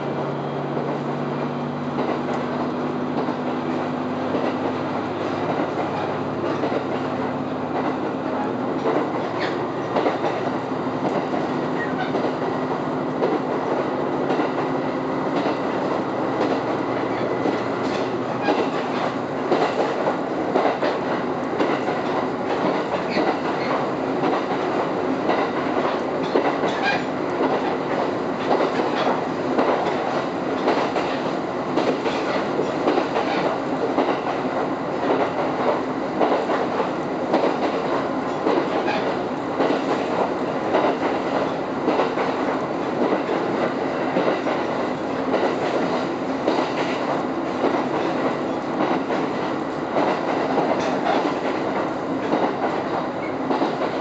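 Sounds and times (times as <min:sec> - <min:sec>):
railcar running rumble: 0:00.0 - 0:54.0
wheels clicking over rail joints: 0:13.2 - 0:54.0.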